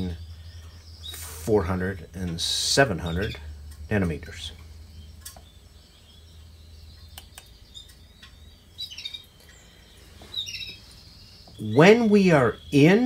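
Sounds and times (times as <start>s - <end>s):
bird chirping: 0.0s - 13.0s
light clicks: 7.0s - 8.4s.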